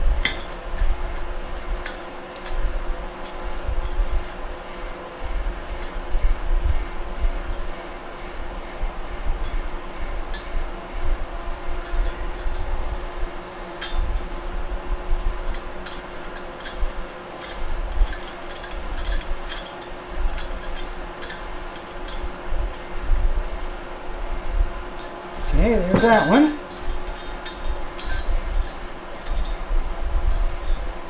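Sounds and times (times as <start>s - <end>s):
steady low hum: 0.0s - 31.0s
light metallic clinks: 0.2s - 2.6s, 11.8s - 12.9s, 15.5s - 22.3s, 25.0s - 31.0s.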